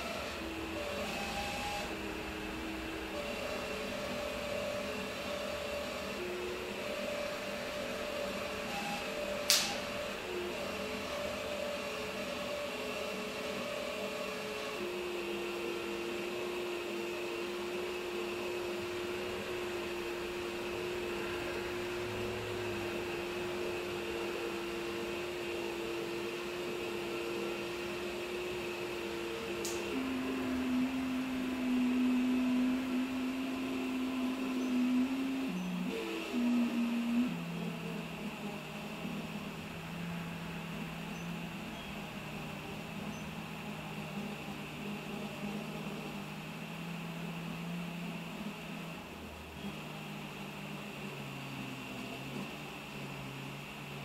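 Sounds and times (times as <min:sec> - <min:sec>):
sharp click: 0:09.4 - 0:09.8.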